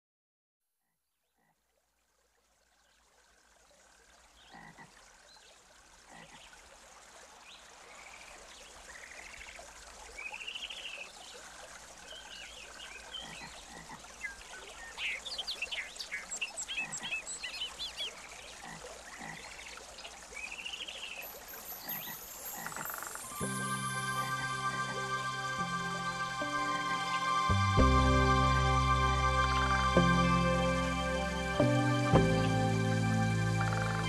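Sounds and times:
soft even hiss: 0:05.2 - 0:32.1.

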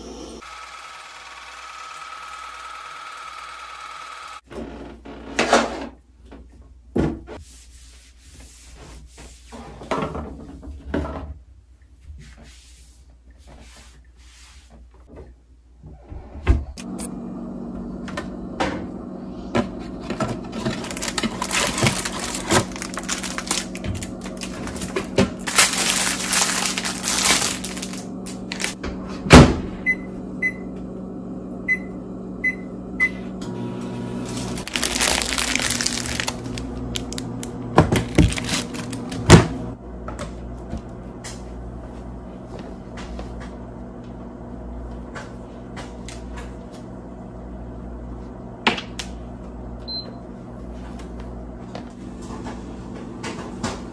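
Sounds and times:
microwave oven humming: 0:00.0 - 0:05.3, 0:16.0 - 0:53.9.

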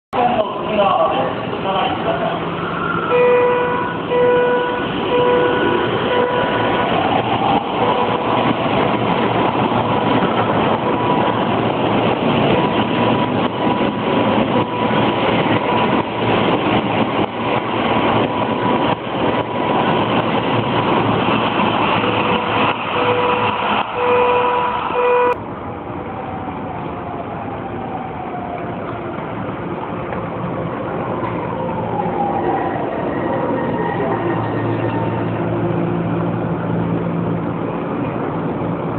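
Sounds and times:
express train rushing past: 0:00.2 - 0:38.9
beeping warning tone: 0:03.0 - 0:07.0, 0:22.2 - 0:25.4.

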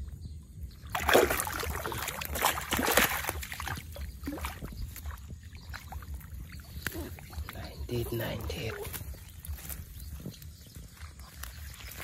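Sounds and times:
hand splashing in muddy water: 0:00.9 - 0:06.0
wet grass rustling: 0:00.9 - 0:12.0.

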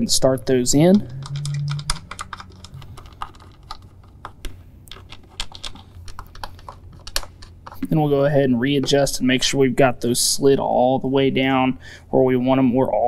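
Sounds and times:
bolts clicking and tapping: 0:00.9 - 0:09.4.

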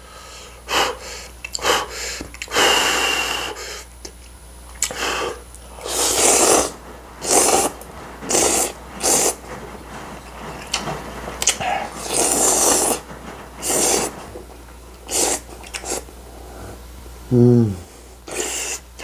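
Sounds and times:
person slurping noodles: 0:15.1 - 0:18.8.

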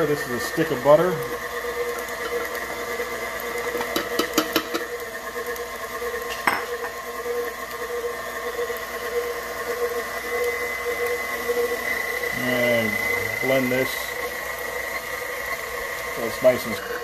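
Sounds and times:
mixer clicks: 0:00.0 - 0:17.0
stand mixer motor whine: 0:00.0 - 0:17.0
beater knocking against bowl: 0:03.8 - 0:04.9, 0:06.3 - 0:06.7.

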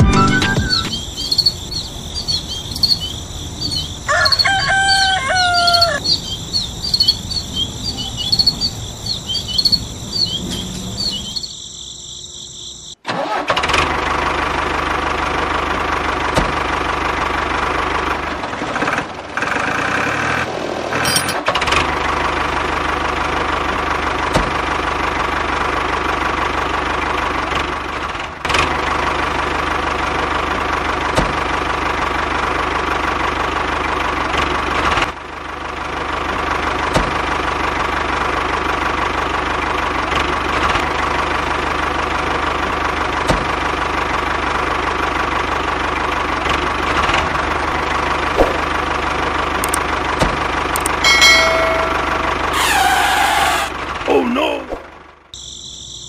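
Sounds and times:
steady high trill: 0:00.0 - 0:01.3, 0:50.8 - 0:54.5
falling whistled bird call: 0:00.0 - 0:04.5, 0:05.5 - 0:12.0
tractor engine running: 0:00.0 - 0:12.1, 0:12.7 - 0:55.4
birds chirping: 0:00.0 - 0:13.0.

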